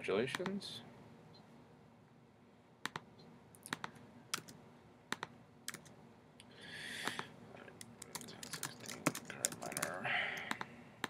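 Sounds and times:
keyboard keystrokes: 0:07.8 - 0:10.7.

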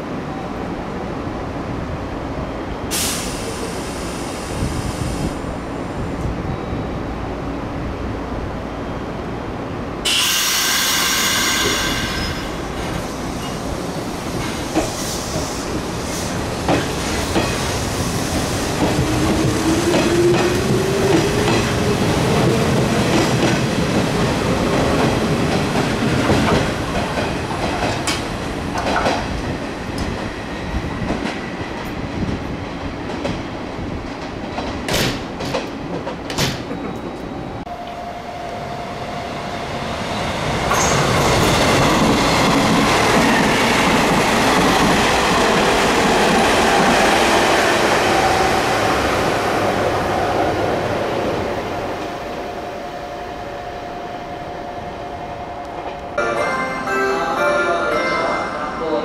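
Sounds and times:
air hiss: 0:02.9 - 0:05.4, 0:10.1 - 0:12.3.

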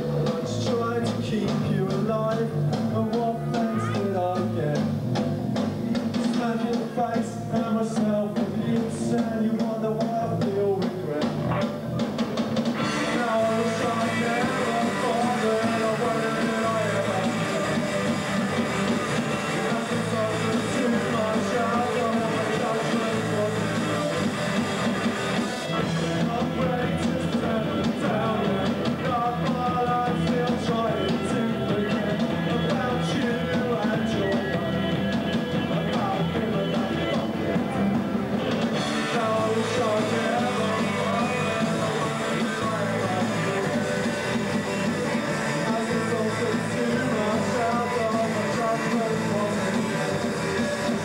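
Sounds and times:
person singing: 0:00.0 - 0:04.9, 0:06.1 - 0:11.7, 0:12.8 - 0:51.0
drums: 0:00.0 - 0:51.0
electric guitar: 0:00.0 - 0:51.0
rock band playing live: 0:00.0 - 0:51.0.

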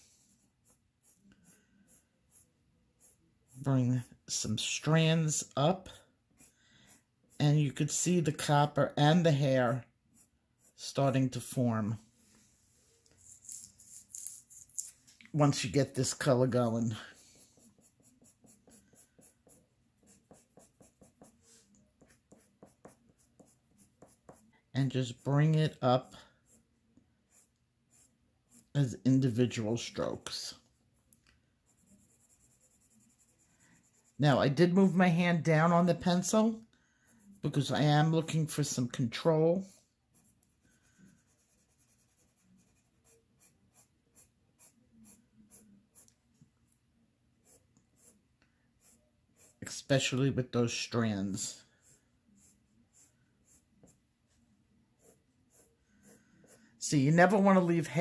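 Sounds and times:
colored pencil scratching paper: 0:00.0 - 0:08.5, 0:09.1 - 0:11.6, 0:12.9 - 0:15.0, 0:15.9 - 0:26.7, 0:27.3 - 0:29.9, 0:31.7 - 0:36.3, 0:39.6 - 0:46.2, 0:47.4 - 0:48.2, 0:48.8 - 0:49.8, 0:51.4 - 0:58.0.

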